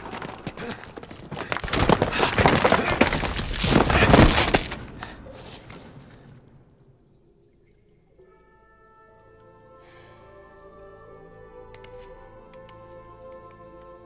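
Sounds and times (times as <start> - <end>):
rocks and rubble crashing down: 0.0 - 6.8.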